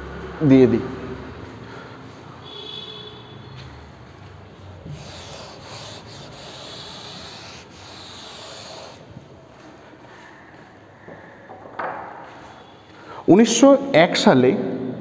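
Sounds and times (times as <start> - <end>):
chalk wiped off blackboard: 4.8 - 9.1.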